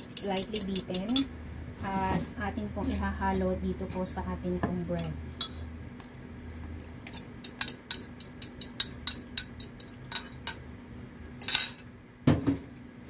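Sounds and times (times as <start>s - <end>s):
fork clicking and scraping in glass jug: 0.0s - 1.3s, 5.0s - 10.6s.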